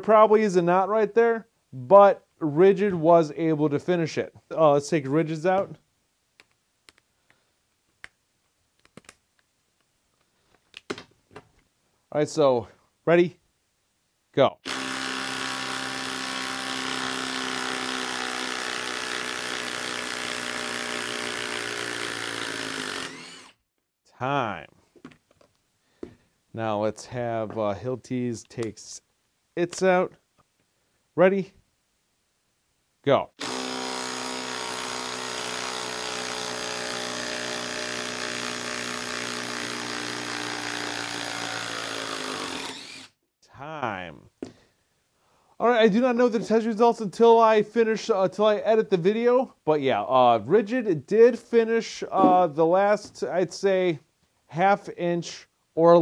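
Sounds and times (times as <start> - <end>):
impact driver running: 14.6 - 23.5, 33.4 - 43.1.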